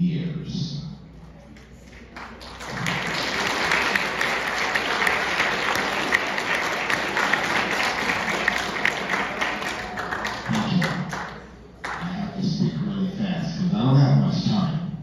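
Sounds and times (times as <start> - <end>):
audience applauding: 2.0 - 12.0.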